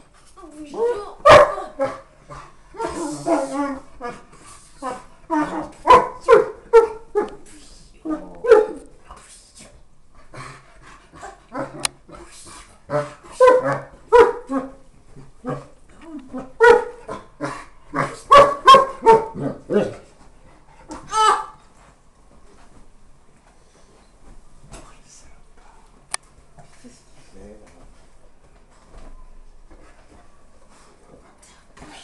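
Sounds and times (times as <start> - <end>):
dog barking: 1.2 - 2.0, 5.8 - 7.4, 8.4 - 8.8, 13.0 - 14.6, 16.6 - 17.0, 18.3 - 19.9.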